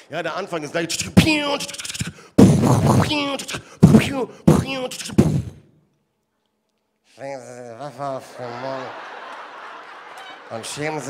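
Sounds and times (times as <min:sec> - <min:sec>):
man making vocal gunfire noises: 0:00.9 - 0:05.6.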